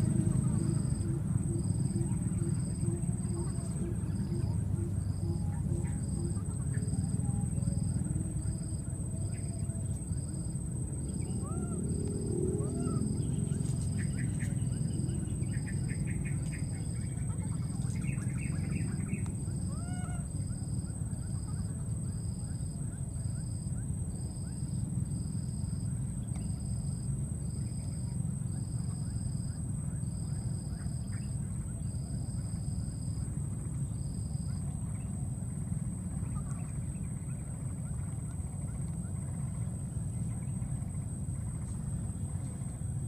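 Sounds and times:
high pulsing chirp: 0.0s - 19.7s
steady low rumble: 0.0s - 43.0s.

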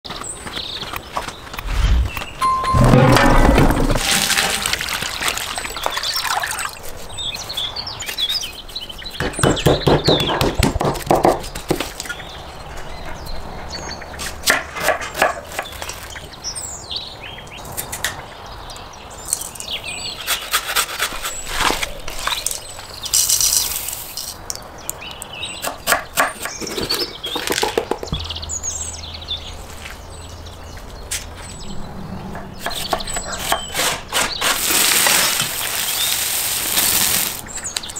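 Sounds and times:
birds chirping: 0.1s - 10.4s, 26.4s - 34.9s.

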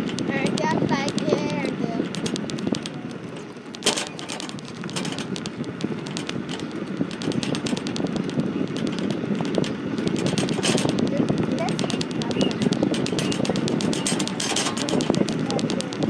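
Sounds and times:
wheels rumbling on tarmac: 0.0s - 16.0s
wire basket rattling: 0.0s - 16.0s.

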